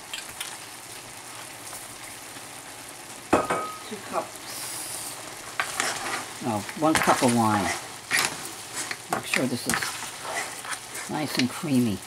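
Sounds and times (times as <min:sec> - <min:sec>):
pasta sizzling in a pan: 0:00.0 - 0:12.0
utensil scraping a pan: 0:05.6 - 0:11.4.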